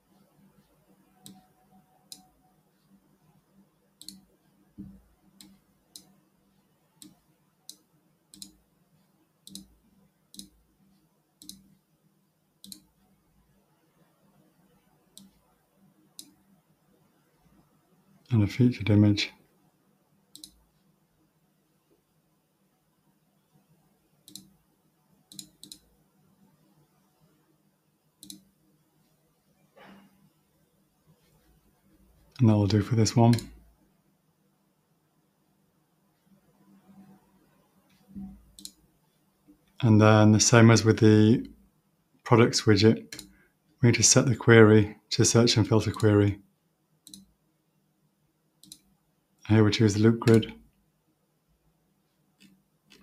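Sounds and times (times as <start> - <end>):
computer mouse clicking: 1.2 - 2.3, 4.0 - 6.1, 7.0 - 8.6, 9.4 - 9.7, 10.3 - 10.6, 11.4 - 11.7, 12.6 - 13.0, 15.1 - 15.4, 16.2 - 16.4, 20.3 - 20.6, 24.2 - 24.6, 25.3 - 25.9, 28.2 - 28.5, 33.3 - 33.6, 38.2 - 38.8, 43.1 - 43.4, 45.9 - 46.1, 47.0 - 47.3, 48.6 - 48.9, 52.4 - 53.0.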